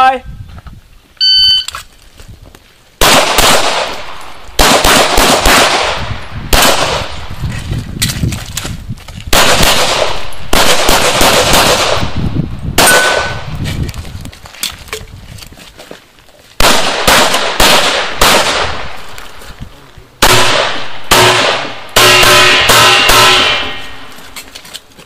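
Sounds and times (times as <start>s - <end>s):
pistol shots: 3.0s - 7.3s, 9.3s - 12.2s, 12.8s - 13.5s, 16.6s - 19.0s, 20.2s - 24.1s.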